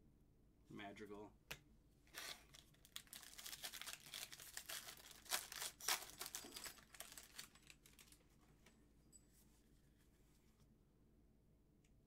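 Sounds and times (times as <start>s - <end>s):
cards and plastic crinkling: 2.1s - 8.8s.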